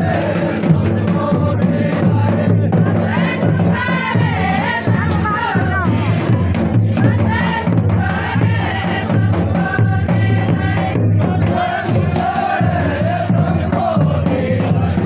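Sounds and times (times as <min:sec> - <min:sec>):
folk song sung in chorus: 0:00.0 - 0:15.0.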